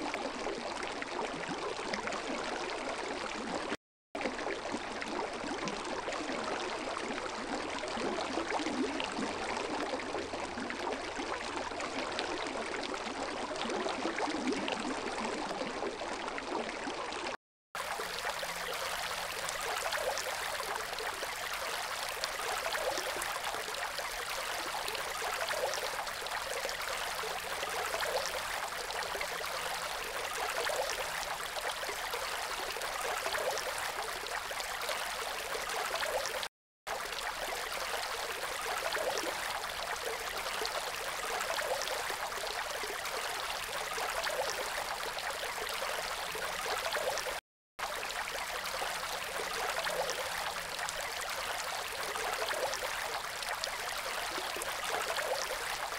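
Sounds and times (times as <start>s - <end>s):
fountain water splashing into pool: 17.8s - 36.3s.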